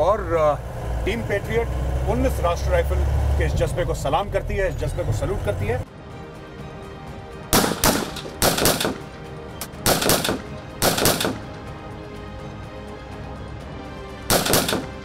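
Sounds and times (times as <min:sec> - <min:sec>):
background music: 0:00.0 - 0:15.0
rifle bursts: 0:07.5 - 0:11.6, 0:14.3 - 0:15.0.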